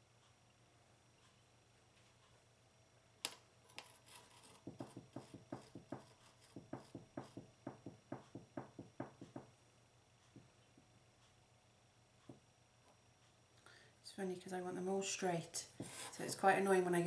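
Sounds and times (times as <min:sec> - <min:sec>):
light taps and knocks: 0:04.5 - 0:09.5.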